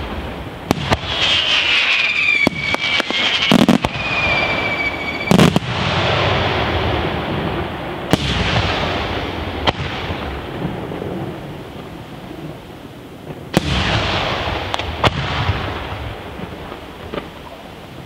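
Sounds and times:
crackling hiss of burning stars: 0.0s - 18.0s.

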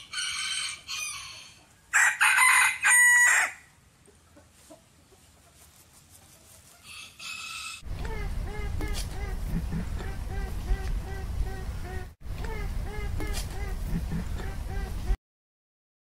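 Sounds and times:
rooster crowing: 0.0s - 3.7s, 6.8s - 7.9s.

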